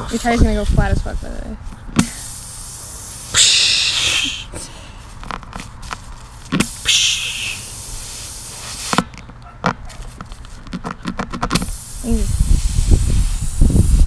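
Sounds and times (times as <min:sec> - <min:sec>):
air hissing from puncture: 0:02.0 - 0:04.7, 0:06.5 - 0:09.1, 0:11.5 - 0:14.0.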